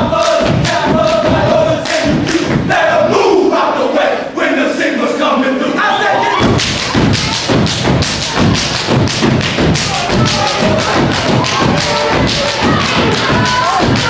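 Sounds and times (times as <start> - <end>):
synchronized stomping on stage: 0.0 - 2.9, 6.4 - 14.0
voices: 9.6 - 14.0.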